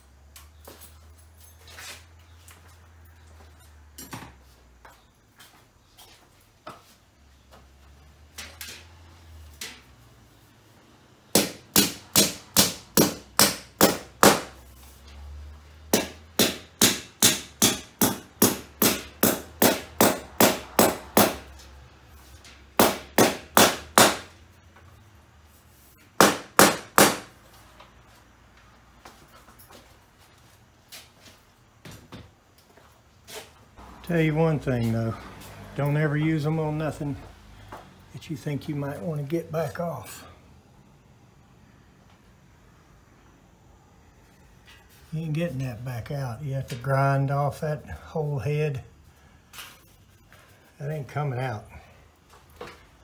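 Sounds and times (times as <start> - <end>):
hammer striking anchors: 11.3 - 14.6, 15.9 - 21.5, 22.8 - 24.4, 26.2 - 27.3.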